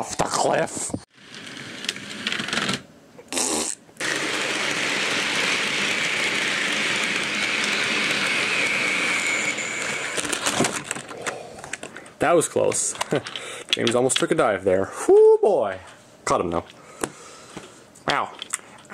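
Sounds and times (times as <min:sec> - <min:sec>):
electric motor whine: 0:04.0 - 0:11.2.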